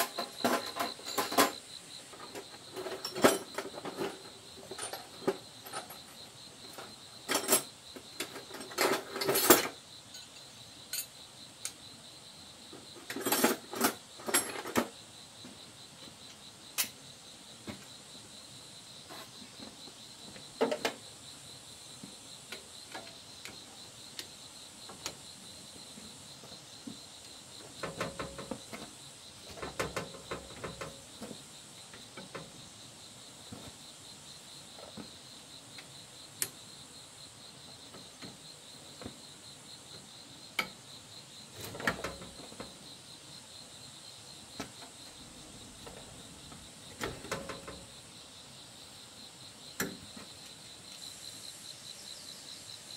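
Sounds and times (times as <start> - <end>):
metal clinks and rattles: 0.0 - 1.7, 2.3 - 6.2, 7.3 - 11.1, 13.1 - 14.9
insects chirring: 0.0 - 52.9.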